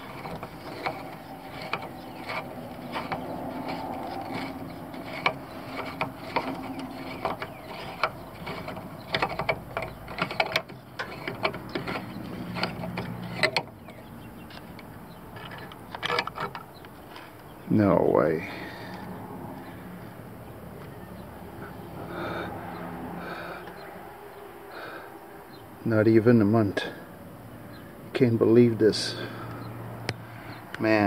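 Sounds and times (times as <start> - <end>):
threads rubbing and grinding: 0.0 - 20.2.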